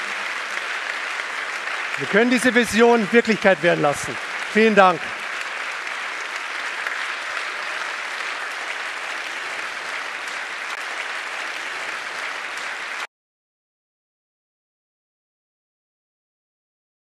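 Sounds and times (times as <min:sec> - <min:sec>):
large audience applauding: 0:00.0 - 0:13.1.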